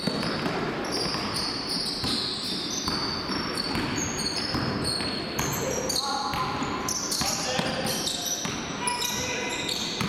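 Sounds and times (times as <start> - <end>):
sneaker squeaks: 0.0 - 10.0
basketball dribbling on hardwood: 2.0 - 5.6.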